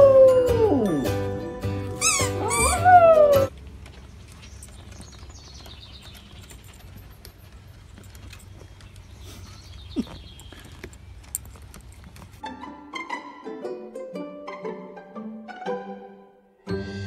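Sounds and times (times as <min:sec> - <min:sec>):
dog howling: 0:00.0 - 0:01.1, 0:02.0 - 0:03.5.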